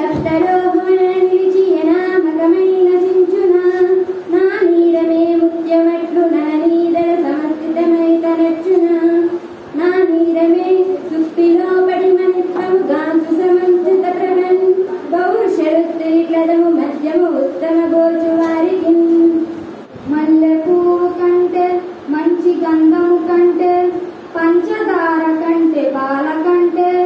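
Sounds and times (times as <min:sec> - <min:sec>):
child singing: 0:00.0 - 0:19.4.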